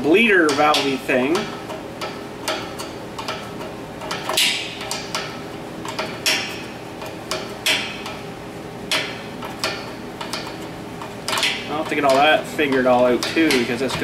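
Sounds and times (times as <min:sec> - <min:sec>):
steady background hum: 0:00.0 - 0:14.0
tool clinking on metal: 0:11.3 - 0:14.0.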